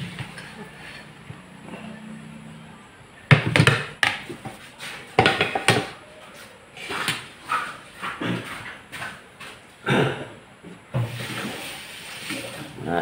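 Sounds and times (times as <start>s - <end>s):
tableware clattering on table: 5.2s - 6.0s.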